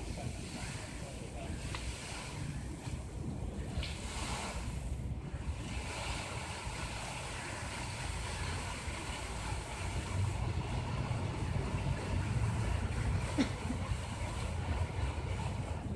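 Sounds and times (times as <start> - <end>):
fountain jets splashing: 0.0 - 15.9
wind on microphone: 0.0 - 15.9.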